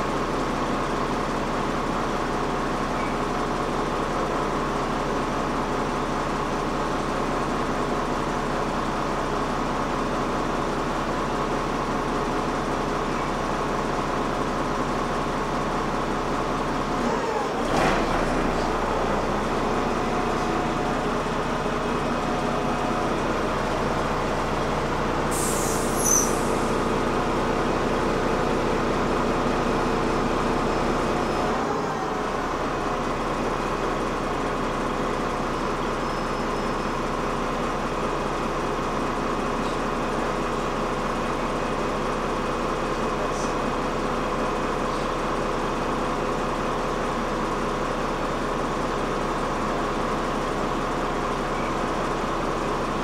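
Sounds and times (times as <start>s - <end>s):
bus engine drone: 0.0s - 53.0s
high-pitched squeal: 25.3s - 26.8s.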